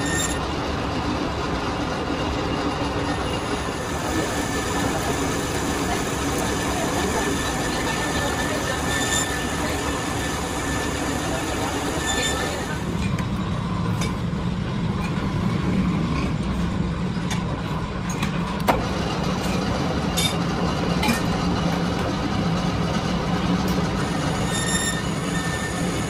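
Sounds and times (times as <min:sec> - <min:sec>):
metal lathe humming: 0:00.0 - 0:13.4, 0:18.8 - 0:26.0.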